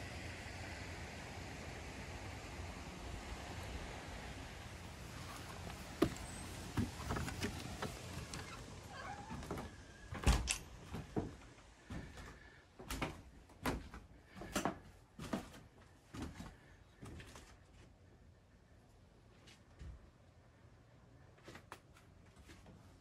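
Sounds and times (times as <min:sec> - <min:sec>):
footsteps on wooden floor: 0:05.2 - 0:08.6, 0:10.8 - 0:17.5
hinge squeaks: 0:05.2 - 0:10.1
door opening and shutting: 0:05.4 - 0:11.3.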